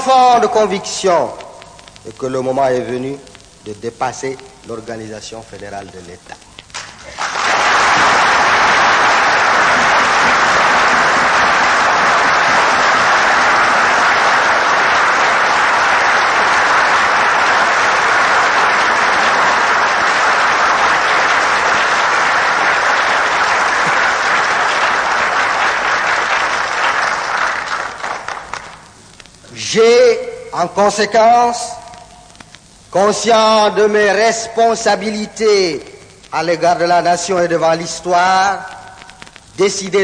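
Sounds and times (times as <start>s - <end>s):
sustained applause: 6.7s - 29.0s.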